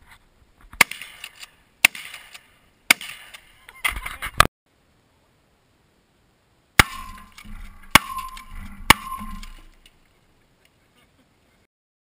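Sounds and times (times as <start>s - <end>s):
shotgun shots: 0.8s - 3.5s, 6.8s - 9.7s
clattering debris: 6.8s - 10.0s
metallic ring: 6.9s - 9.8s.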